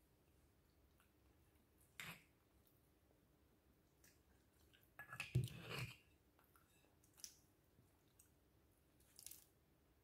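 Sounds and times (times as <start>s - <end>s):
fork scraping ceramic bowl: 5.0s - 6.1s.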